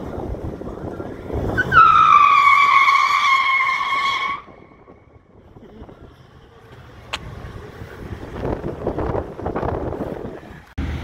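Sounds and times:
tyre squeal: 0:01.5 - 0:04.6.

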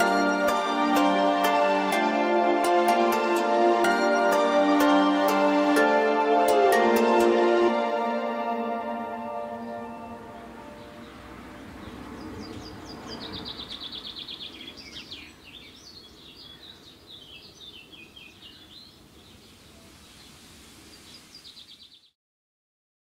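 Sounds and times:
outdoor background hiss: 0:00.0 - 0:22.2
songbirds chirping and trilling: 0:07.8 - 0:22.2.

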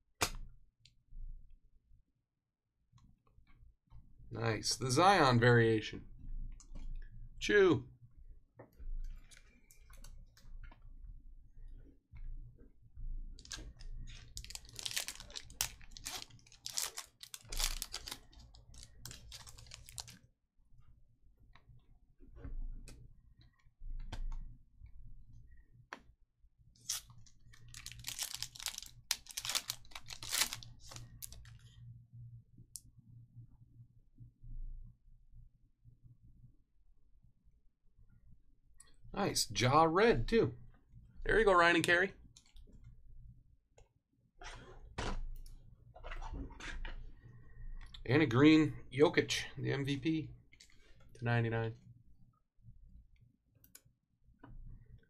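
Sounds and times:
trading cards rustling: 0:13.4 - 0:20.2, 0:26.9 - 0:31.6.

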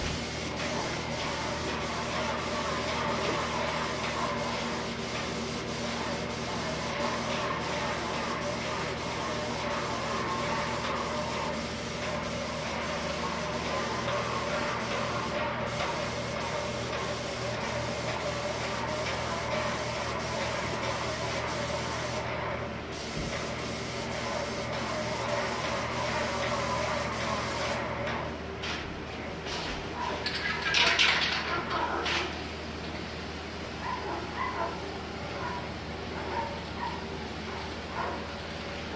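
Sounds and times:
paint sprayer hissing: 0:00.0 - 0:27.9.

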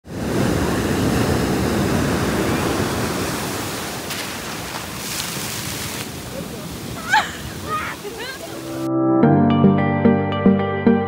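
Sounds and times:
ocean surf rushing on beach: 0:00.0 - 0:08.9.

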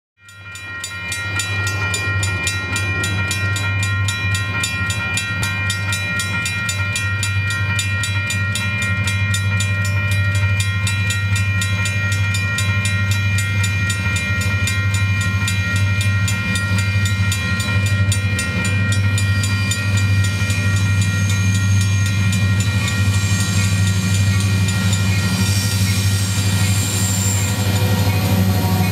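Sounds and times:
crossing bell ringing: 0:00.2 - 0:28.9.

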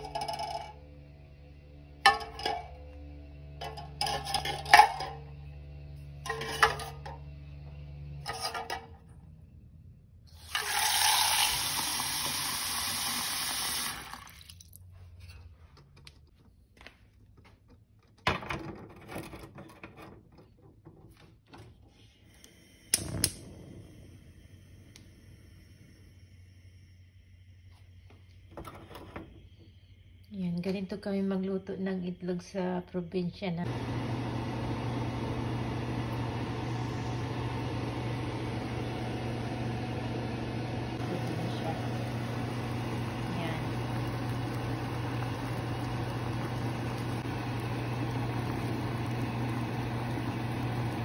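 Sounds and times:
tin can clinking on metal rack: 0:02.1 - 0:02.8
tap water running into can: 0:10.4 - 0:14.8, 0:41.2 - 0:51.0.

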